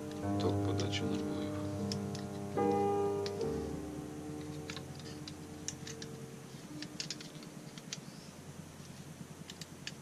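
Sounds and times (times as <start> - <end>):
soft background music: 0.0 - 10.0
small metal parts clicking: 6.8 - 8.0.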